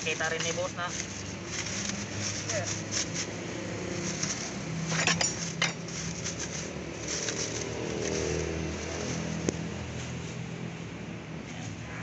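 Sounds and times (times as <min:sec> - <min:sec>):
plastic wrapping crackling: 0:00.0 - 0:10.3
vehicle engine humming: 0:00.0 - 0:12.0
metal tools clinking: 0:04.1 - 0:06.6.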